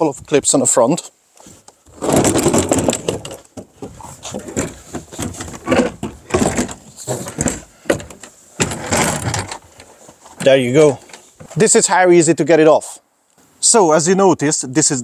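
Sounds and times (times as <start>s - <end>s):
car bonnet panel scraping and rattling: 1.9s - 10.0s.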